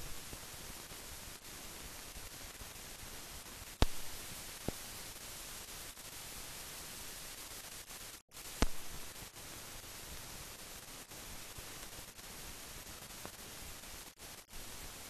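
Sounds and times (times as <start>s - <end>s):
film soundtrack hiss: 0.0s - 15.0s
sharp clicks: 8.6s - 9.0s.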